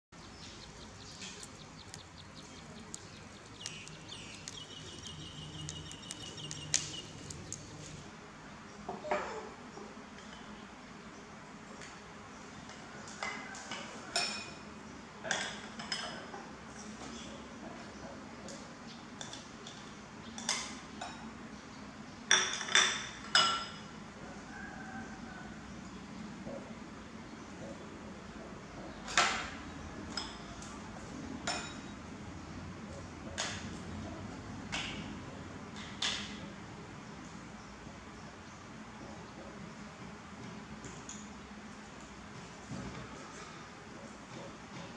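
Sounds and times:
birds chirping: 0.1s - 8.0s
charcoal crackling and popping: 0.4s - 8.0s
ceramic bowls clinking: 31.4s - 31.9s.

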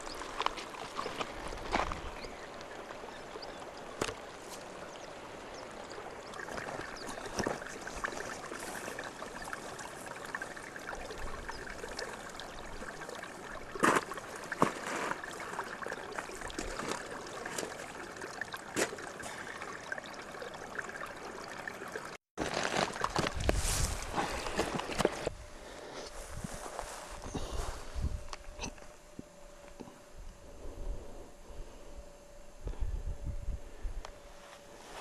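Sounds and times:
water trickling between rocks: 0.0s - 25.3s.

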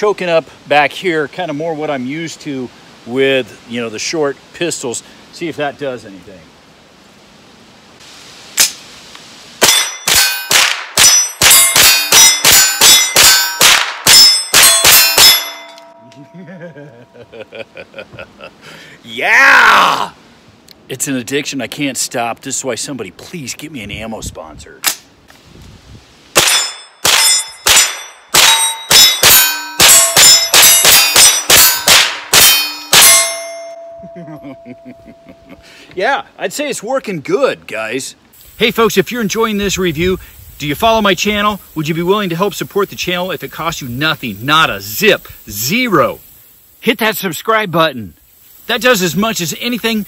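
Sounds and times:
rifle rapid fire: 9.6s - 12.6s, 26.4s - 32.4s
steel targets ringing: 9.6s - 17.2s, 26.4s - 35.6s.

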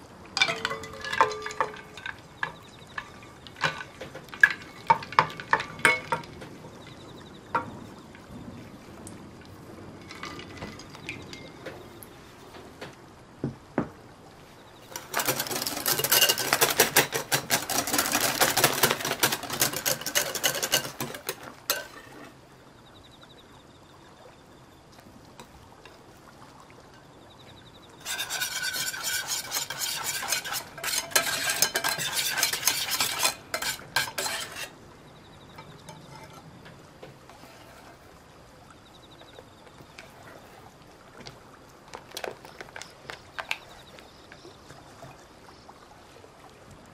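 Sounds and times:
fork scraping cookie crumbs: 28.0s - 34.7s.

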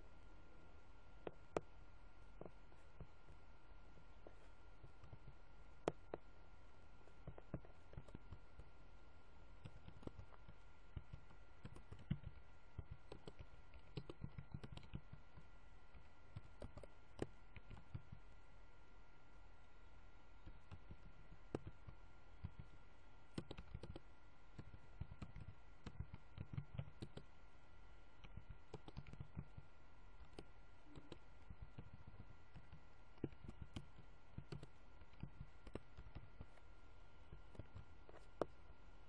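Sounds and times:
faint electrical hum: 0.0s - 39.0s
mouse and keyboard clicks: 4.2s - 6.2s, 7.1s - 8.7s, 9.6s - 18.2s, 20.4s - 27.3s, 28.2s - 36.6s, 37.3s - 38.6s.

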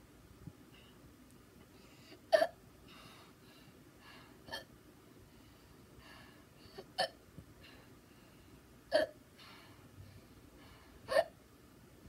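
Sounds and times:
person hiccuping: 8.9s - 9.2s.

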